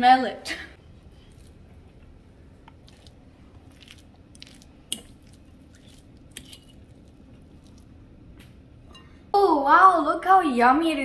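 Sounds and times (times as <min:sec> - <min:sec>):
salad squishing when stirred: 0:01.0 - 0:08.0.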